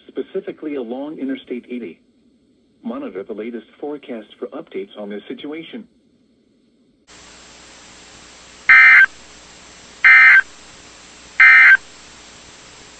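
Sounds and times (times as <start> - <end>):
steady radio hiss: 0.0 - 12.9
buzzy data bursts: 7.2 - 12.9.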